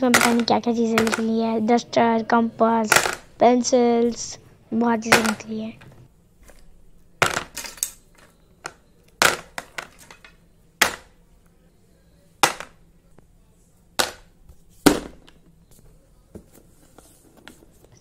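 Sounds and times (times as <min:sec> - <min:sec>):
pastel sticks clacking into plastic box: 0:00.0 - 0:01.4.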